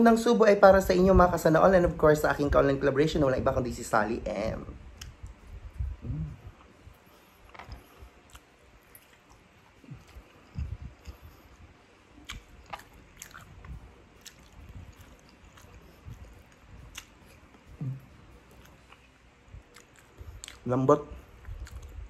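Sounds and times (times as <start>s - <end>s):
wet mouth clicks: 4.9s - 6.7s, 7.4s - 20.7s, 21.3s - 22.0s
person chewing food: 4.9s - 22.0s.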